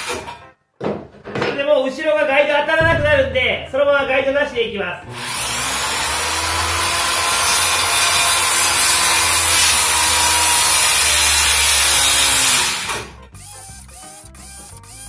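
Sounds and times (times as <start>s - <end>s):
circular saw cutting timber: 5.1s - 15.0s.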